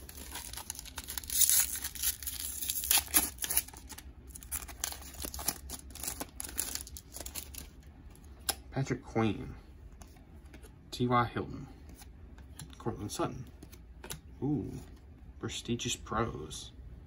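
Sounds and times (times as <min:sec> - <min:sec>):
foil wrapper tearing and crinkling: 0:00.0 - 0:07.8.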